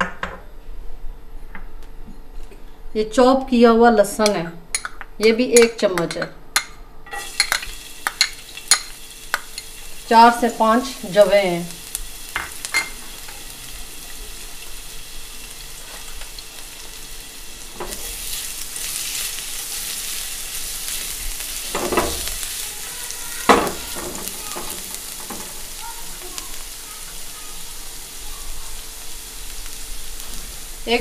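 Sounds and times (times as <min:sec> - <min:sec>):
garlic sizzling in oil: 0:07.1 - 0:31.0.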